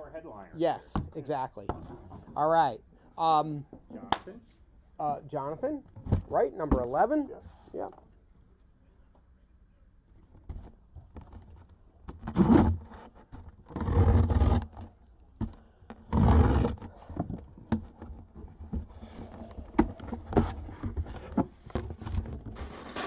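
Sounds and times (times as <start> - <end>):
cardboard tearing and scraping: 12.3 - 14.7, 16.1 - 17.0, 19.0 - 23.0.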